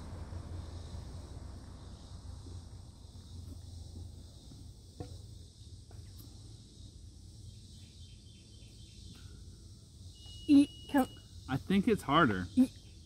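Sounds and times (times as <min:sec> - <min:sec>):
low steady rumble: 0:00.0 - 0:07.7
insects buzzing: 0:00.0 - 0:13.0.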